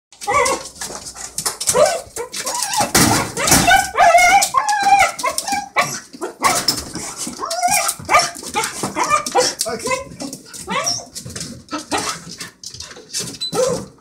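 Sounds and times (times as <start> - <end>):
dogs barking: 0.2 - 0.6, 1.7 - 6.8, 7.4 - 11.0
dogs whining and yelping: 0.2 - 14.0.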